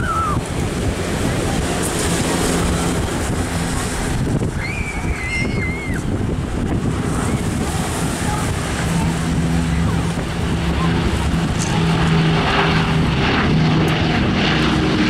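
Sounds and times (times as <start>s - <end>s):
propeller aircraft engines droning: 0.0s - 15.0s
wind buffeting microphone: 0.0s - 15.0s.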